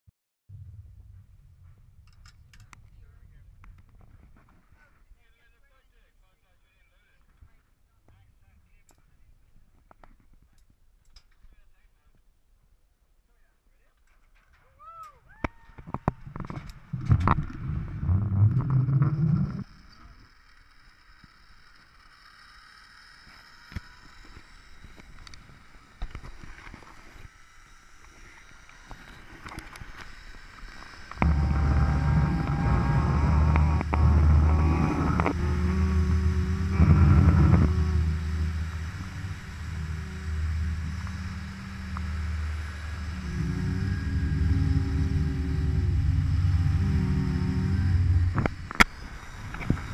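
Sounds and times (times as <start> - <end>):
zipline pulleys rumbling on cable: 15.4 - 49.9
faint whine: 15.8 - 49.9
scattered clicks: 28.6 - 49.9.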